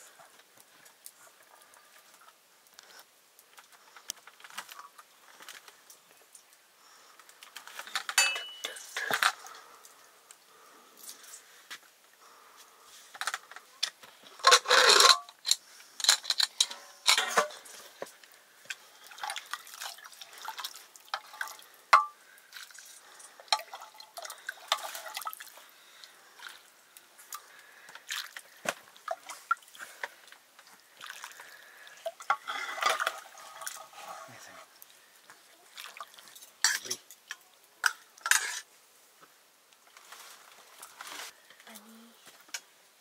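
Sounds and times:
pots and utensils clinking: 0:07.8 - 0:09.4, 0:14.4 - 0:17.9, 0:21.1 - 0:22.2, 0:36.3 - 0:38.7
water splashing and dripping: 0:17.6 - 0:34.0, 0:34.8 - 0:38.3.

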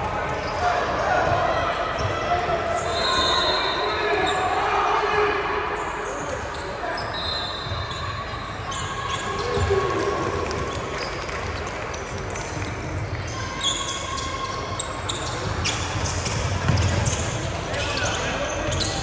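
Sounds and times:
din of a sports hall: 0:00.0 - 0:19.0
basketball bouncing on gym floor: 0:15.2 - 0:17.7.

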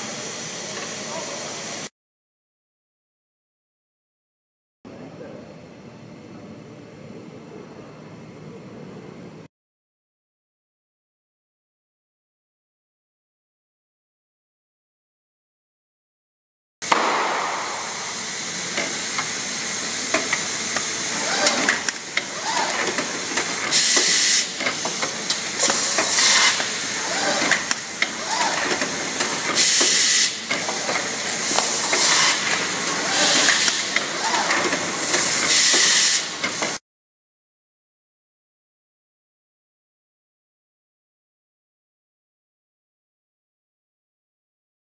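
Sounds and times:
compressed air hisses: 0:16.9 - 0:36.8
machine clattering and clicking: 0:20.1 - 0:36.8.

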